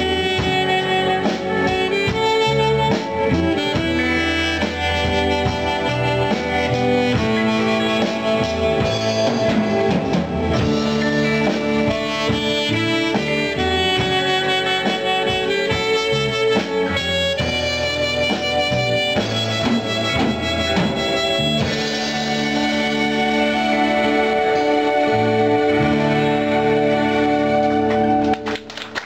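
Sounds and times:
held melody notes: 0:00.0 - 0:28.8.

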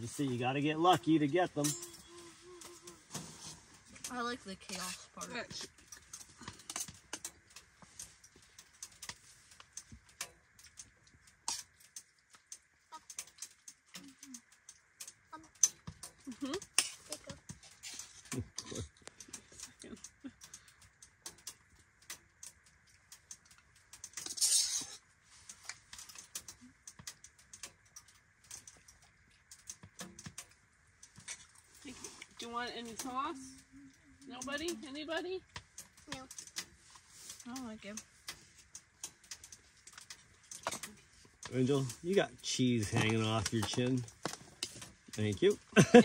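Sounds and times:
spoon scraping a pot: 0:24.2 - 0:25.0.

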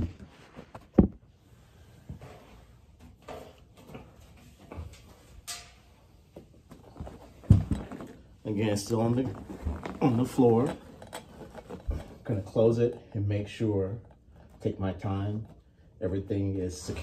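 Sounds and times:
handling knocks and clicks: 0:06.4 - 0:08.3.

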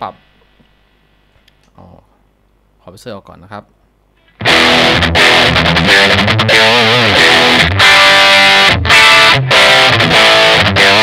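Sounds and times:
distorted electric guitar: 0:04.2 - 0:11.0.

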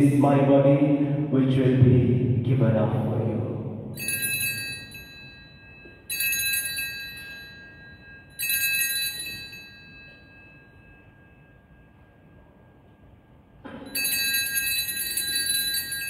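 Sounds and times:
altar bells ringing: 0:03.9 - 0:16.0.

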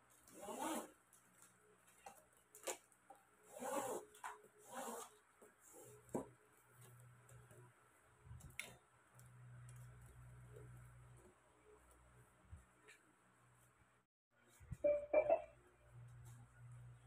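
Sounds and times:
rustling of weaving strips: 0:00.0 - 0:03.3.

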